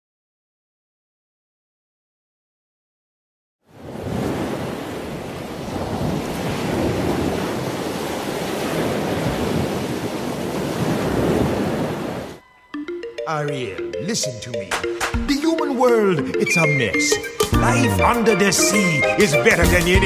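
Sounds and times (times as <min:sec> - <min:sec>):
ocean waves breaking: 0:03.7 - 0:12.4.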